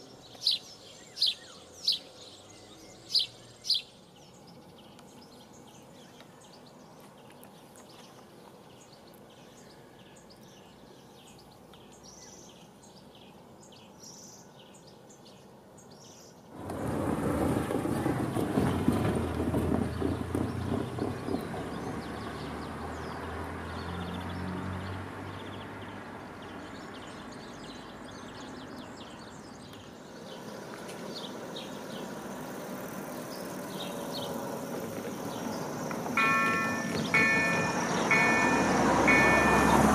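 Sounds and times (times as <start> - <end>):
birds chirping faintly: 0.0 - 16.5, 19.8 - 39.9
train rumbling and clattering: 16.6 - 23.6, 34.7 - 39.9.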